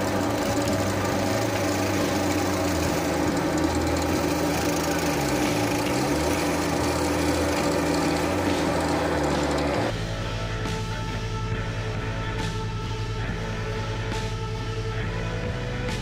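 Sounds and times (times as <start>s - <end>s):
drill press boring into plywood: 0.0s - 9.9s.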